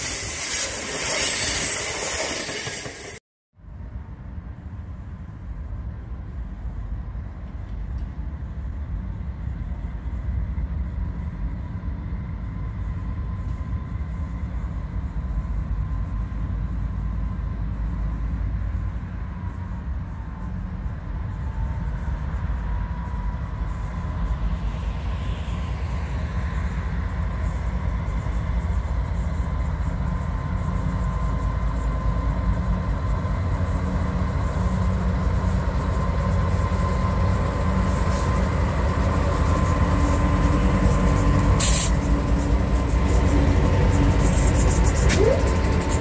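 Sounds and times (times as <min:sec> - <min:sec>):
diesel locomotive engines rumbling: 0:00.0 - 0:46.0
train running on rails: 0:00.0 - 0:46.0.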